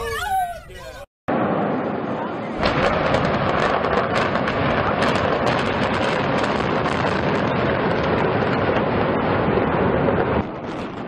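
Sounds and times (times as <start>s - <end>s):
building collapsing rumble: 1.3s - 11.0s
sharp explosive cracks: 2.6s - 11.0s.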